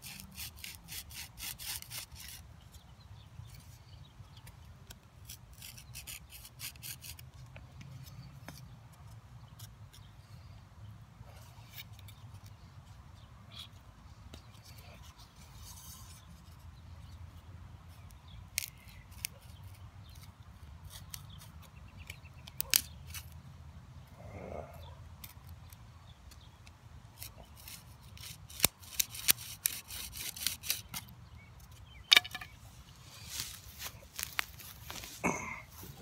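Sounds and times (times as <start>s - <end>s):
wooden clicks and scrapes: 25.2s - 32.6s.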